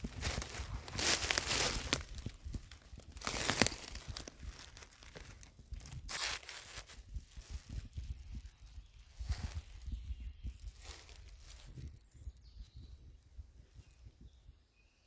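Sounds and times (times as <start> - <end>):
dry leaves crackling under a hand: 0.0 - 9.8, 10.6 - 11.8.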